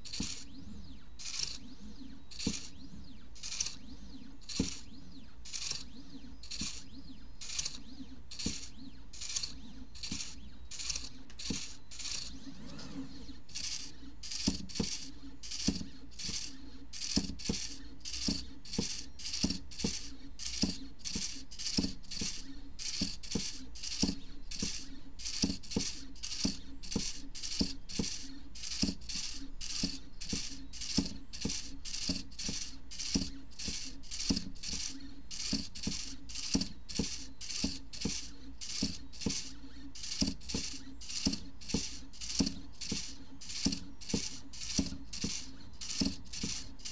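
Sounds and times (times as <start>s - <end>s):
servo clicks: 0.0s - 46.9s
stepper motors whirring: 0.0s - 46.9s.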